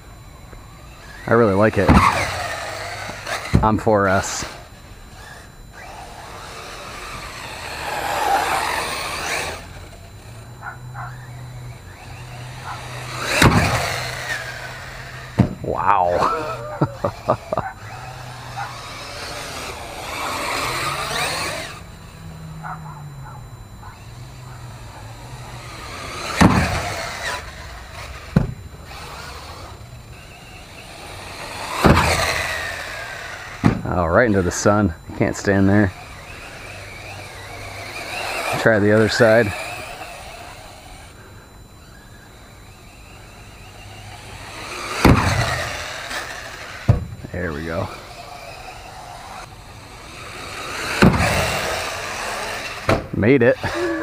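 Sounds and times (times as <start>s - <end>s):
electric motor whining: 0.0s - 54.0s
tyres on dirt: 0.0s - 54.0s
rc car landing smack: 1.8s - 3.6s, 6.5s - 9.6s, 12.8s - 15.6s, 25.8s - 29.7s, 31.5s - 33.9s, 44.6s - 47.2s, 50.6s - 53.1s
rc car hitting a ramp: 1.8s - 15.6s, 16.4s - 21.8s, 24.8s - 33.9s, 35.9s - 38.6s, 42.7s - 47.2s, 47.9s - 54.0s
loud thump of landing: 1.9s - 2.2s, 13.3s - 14.0s, 15.3s - 15.7s, 26.4s - 26.9s, 28.3s - 28.6s, 31.8s - 32.4s, 33.6s - 33.9s, 45.0s - 45.7s, 46.9s - 47.2s, 51.0s - 51.5s, 52.8s - 53.2s.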